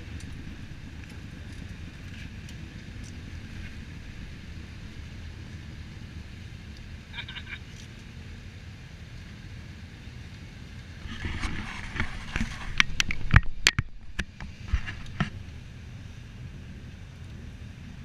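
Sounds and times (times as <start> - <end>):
motorcycles idling: 0.0 - 11.0
knocks and rattles on camera: 11.1 - 15.4.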